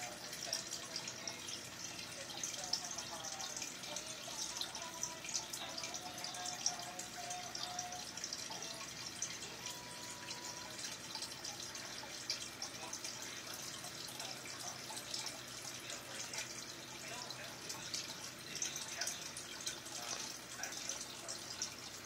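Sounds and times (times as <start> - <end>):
aquarium water bubbling: 0.0 - 22.0.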